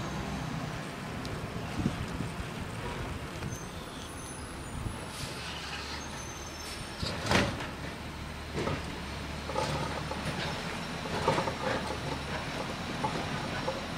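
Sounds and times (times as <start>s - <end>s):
truck engine hum: 0.0s - 13.9s.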